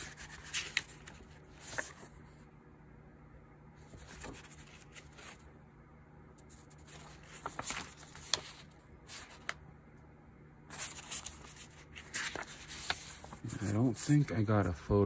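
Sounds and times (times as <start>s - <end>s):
paper rustling: 0.0s - 2.4s, 3.8s - 5.5s, 6.4s - 9.6s, 10.7s - 14.3s.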